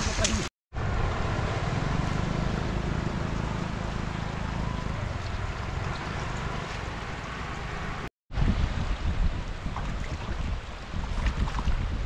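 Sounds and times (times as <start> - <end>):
floodwater rushing: 1.1 - 8.1, 9.4 - 12.0
wind buffeting microphone: 8.3 - 12.0.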